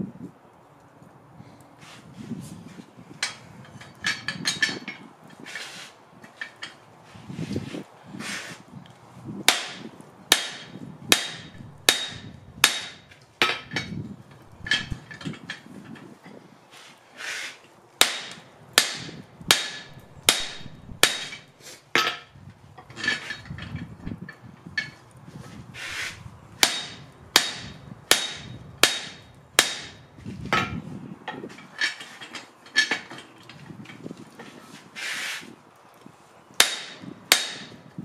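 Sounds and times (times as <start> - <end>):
hammer striking metal: 9.5 - 13.8, 14.5 - 15.0, 18.0 - 21.4, 26.6 - 30.0, 36.6 - 37.8.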